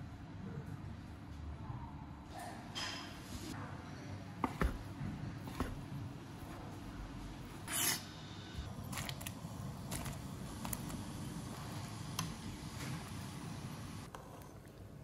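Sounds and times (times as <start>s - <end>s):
knife scraping on cutting board: 7.6s - 8.1s.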